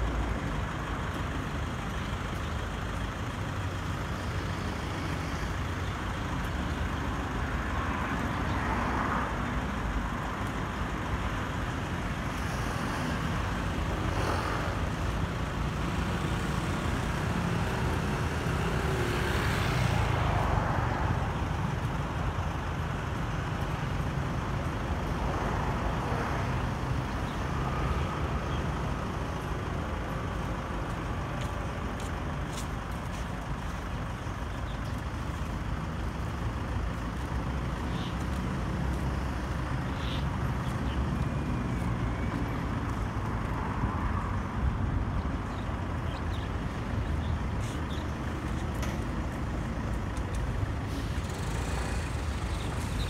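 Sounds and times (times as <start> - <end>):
road traffic hum: 0.0 - 53.0.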